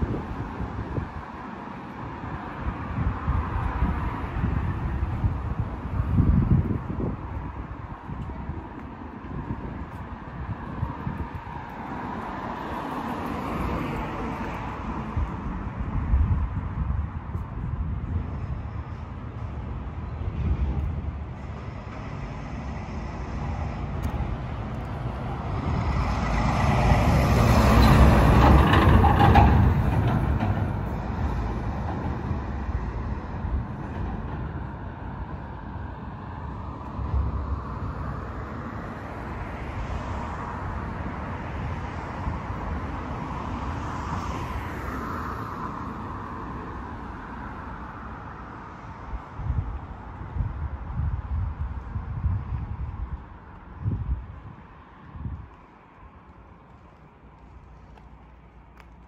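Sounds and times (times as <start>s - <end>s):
vehicle passing: 17.8s - 59.0s.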